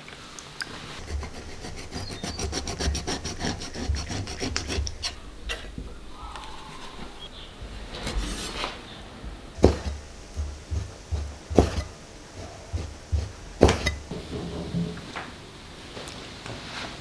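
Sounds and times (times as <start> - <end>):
knife cutting strokes: 0.8 - 5.2, 9.6 - 14.1
cleaver knocking on wooden block: 9.6 - 14.2.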